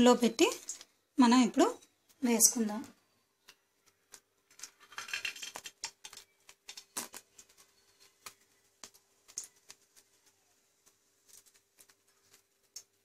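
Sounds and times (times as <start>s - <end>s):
batter frying in hot oil: 3.4s - 13.0s.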